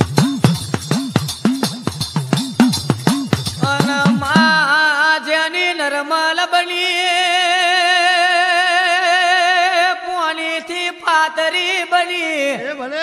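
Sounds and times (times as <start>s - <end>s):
man singing folk song: 3.6s - 13.0s.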